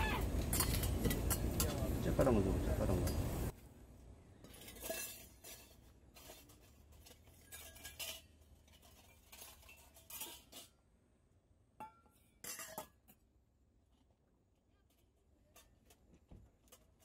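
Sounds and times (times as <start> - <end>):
metal bowls clinking: 0.3 - 2.2, 2.8 - 3.5, 4.5 - 10.8, 11.8 - 13.2.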